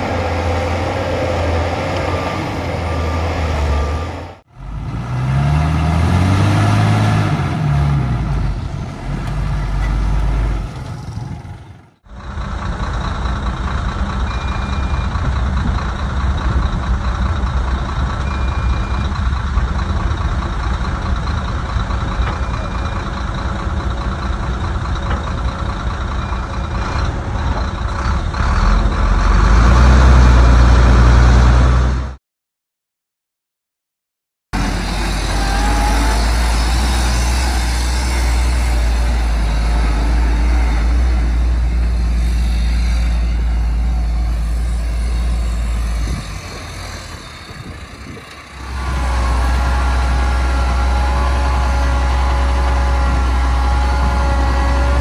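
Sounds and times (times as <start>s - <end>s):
engine revving: 0.0s - 12.0s, 28.0s - 32.2s, 34.6s - 55.0s
heavy diesel engines running: 0.0s - 32.2s, 34.6s - 55.0s
back-up alarm beeping: 1.6s - 4.4s.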